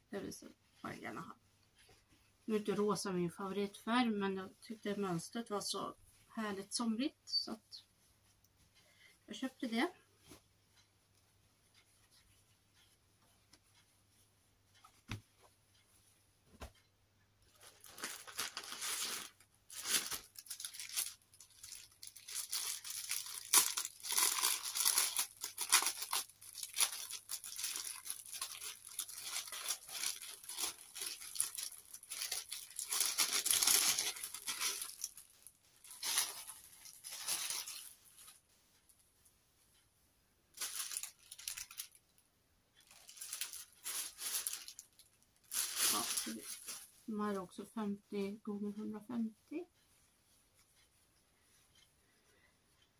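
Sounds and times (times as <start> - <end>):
plastic packaging crinkling: 17.6 - 38.4, 40.6 - 42.0, 42.8 - 46.9.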